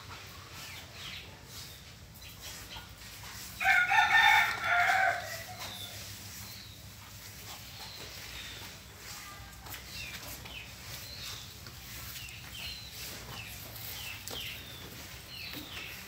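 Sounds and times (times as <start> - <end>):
rooster crowing: 3.6 - 5.7.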